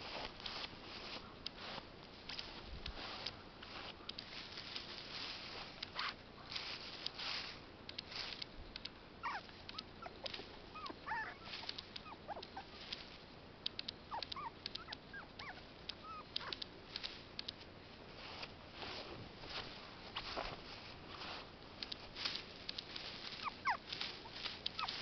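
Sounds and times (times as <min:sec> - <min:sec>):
rustling in grass: 0:00.0 - 0:13.4, 0:14.4 - 0:25.0
puppy whimpering high squeaks: 0:09.2 - 0:10.1, 0:10.8 - 0:12.7, 0:14.1 - 0:16.6, 0:23.4 - 0:23.8.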